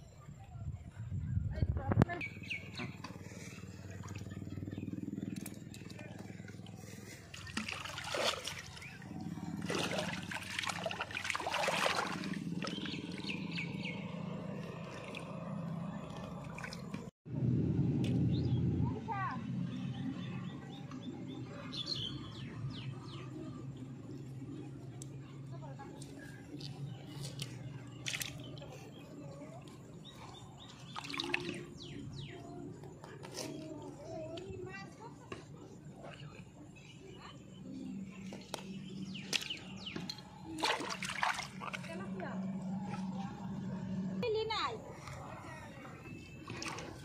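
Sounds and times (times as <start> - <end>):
steady low hum: 0.0 - 33.2
water splashing and trickling: 5.3 - 17.1, 25.6 - 32.6, 38.3 - 47.0.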